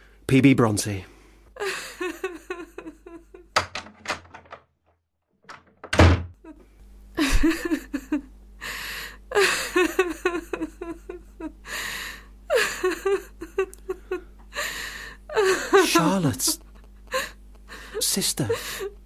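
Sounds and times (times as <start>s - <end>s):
woman sobbing: 1.6s - 3.5s, 7.2s - 19.0s.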